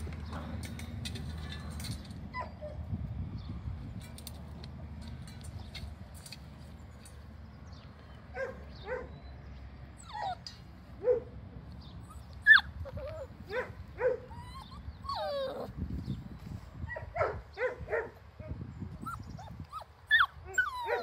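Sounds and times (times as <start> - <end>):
puppies yelping: 10.0 - 10.5, 12.0 - 15.8, 19.0 - 21.0
puppy wavering whine: 14.3 - 15.9, 19.0 - 21.0.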